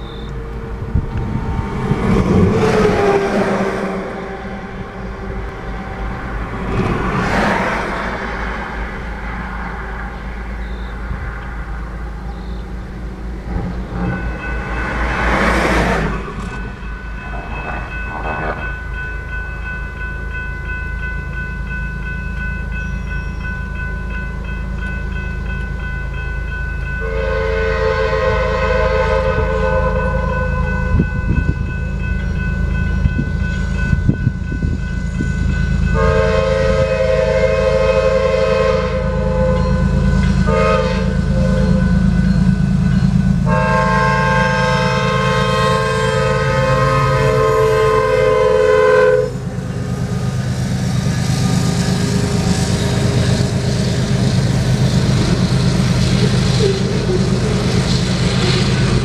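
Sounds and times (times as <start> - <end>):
crossing bell ringing: 0.0 - 59.0
train rumble: 0.0 - 59.0
locomotive horn blasts: 27.0 - 31.6, 35.9 - 42.0, 43.4 - 50.2.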